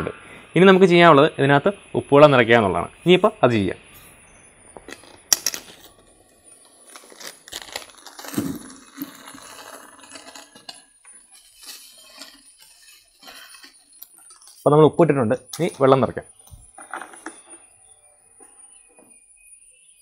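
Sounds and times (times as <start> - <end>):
salt grains hissing into bucket: 4.8 - 14.7
plastic packet crinkling: 6.7 - 10.8.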